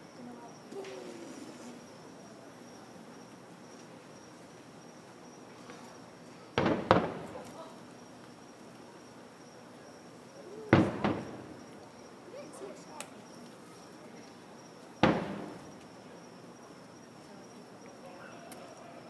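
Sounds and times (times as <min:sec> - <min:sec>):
distant firework booms: 0:06.5 - 0:07.6, 0:10.7 - 0:11.8, 0:15.0 - 0:15.8.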